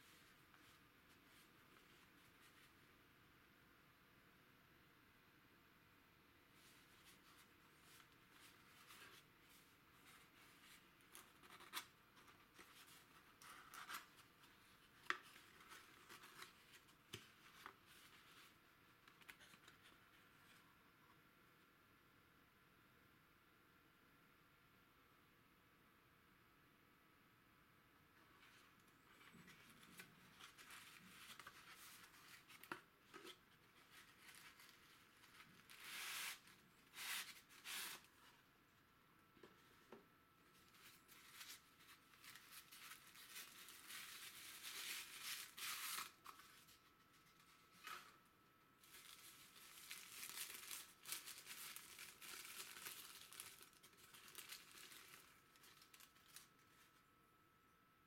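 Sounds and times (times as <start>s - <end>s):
tissue paper crinkling: 0.0s - 2.9s, 6.6s - 20.0s, 28.4s - 38.4s, 40.4s - 48.2s, 48.8s - 57.0s.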